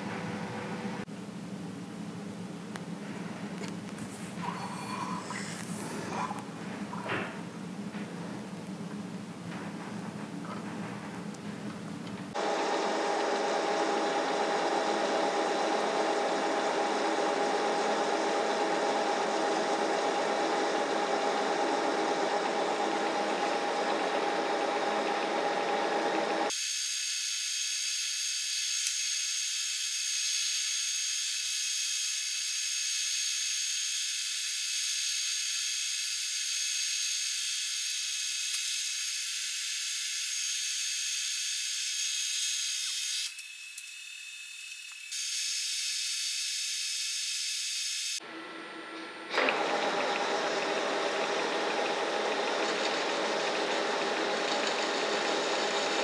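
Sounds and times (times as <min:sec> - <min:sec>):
metal lathe running: 0:12.3 - 0:26.5, 0:49.3 - 0:56.0.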